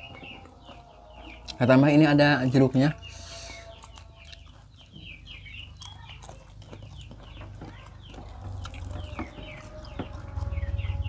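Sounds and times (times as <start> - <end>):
chickens clucking: 0.0 - 11.0
clicks and taps of eating: 3.8 - 10.5
low hum: 8.4 - 11.0.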